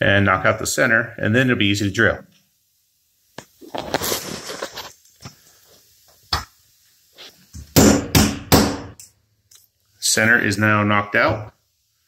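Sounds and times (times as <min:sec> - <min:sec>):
hammer striking metal punch: 0:07.8 - 0:09.0.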